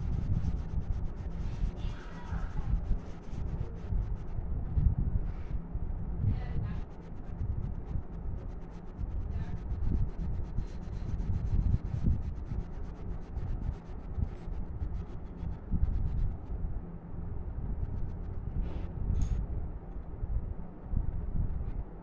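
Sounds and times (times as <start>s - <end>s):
pencil scratching on paper: 0.0s - 4.3s, 6.4s - 16.4s
steady low rumble: 0.0s - 22.0s.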